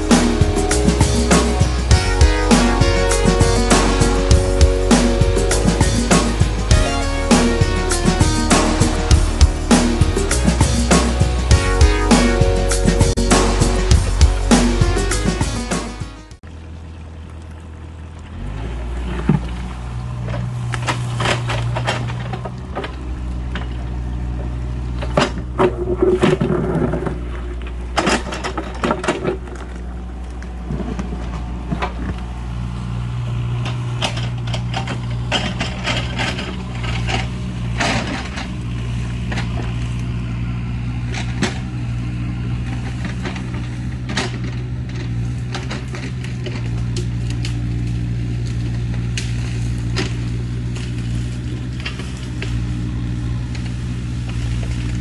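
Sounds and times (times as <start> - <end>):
excavator diesel engine running: 0.0 - 55.0
bucket clanking and scraping: 19.0 - 32.5, 33.4 - 55.0.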